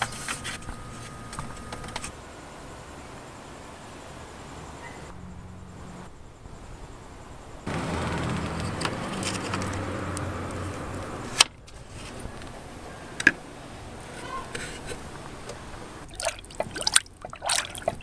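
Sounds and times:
plastic rustling and scraping: 11.7s - 12.5s.

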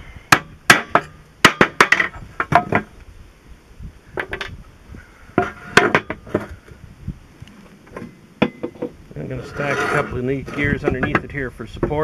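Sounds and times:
metal parts clunking on steel bench: 0.7s - 2.9s, 5.4s - 6.5s, 10.5s - 12.0s.

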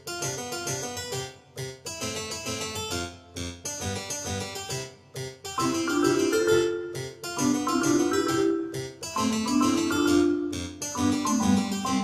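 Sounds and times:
keyboard melody: 2.9s - 12.0s.

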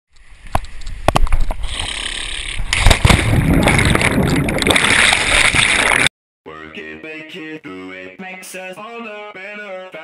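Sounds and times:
rushing and splashing water: 2.7s - 6.1s.

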